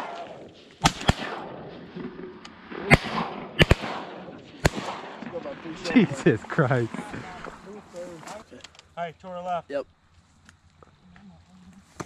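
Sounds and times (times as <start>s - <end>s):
shotgun shots with echo: 0.0s - 5.6s.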